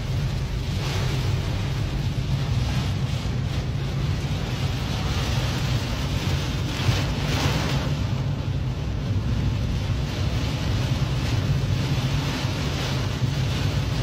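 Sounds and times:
rain battering a car: 0.0 - 14.0
storm wind against a car: 0.0 - 14.0.

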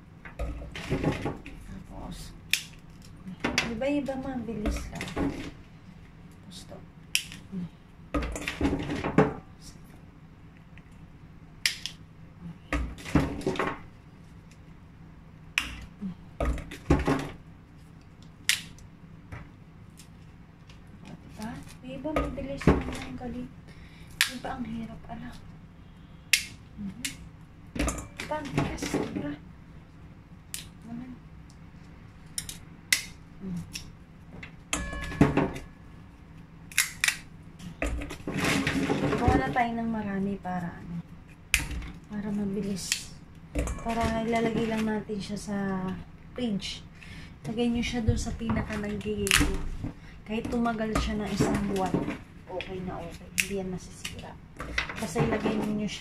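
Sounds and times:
mushroom stalks snapping: 2.5 - 3.2, 7.1 - 7.5, 11.6 - 12.0, 18.4 - 18.8, 24.1 - 24.4, 26.3 - 27.2, 30.5 - 30.8, 32.3 - 34.0, 36.7 - 37.8
mushroom stalks cracking: 36.7 - 38.3.

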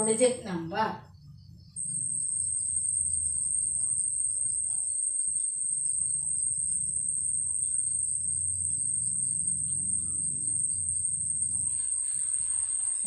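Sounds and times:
steady high-pitched whine: 0.0 - 13.0.

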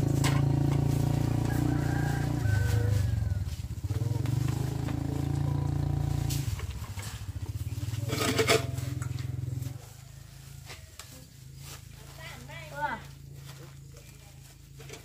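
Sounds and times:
small engine running: 0.0 - 10.2.

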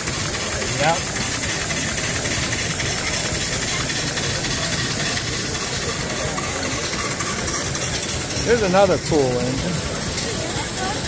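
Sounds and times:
dense mechanical din: 0.0 - 11.0
exhaust air hissing: 0.0 - 11.0.

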